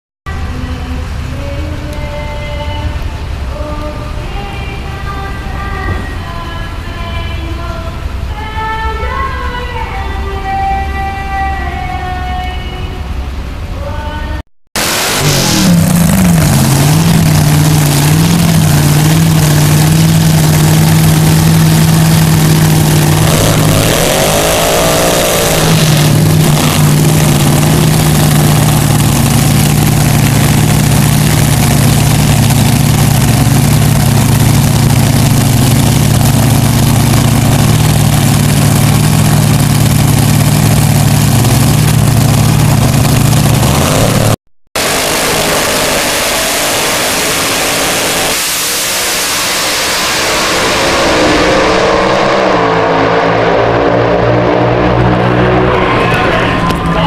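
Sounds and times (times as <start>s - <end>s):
dragster engine idling: 15.2s - 48.2s.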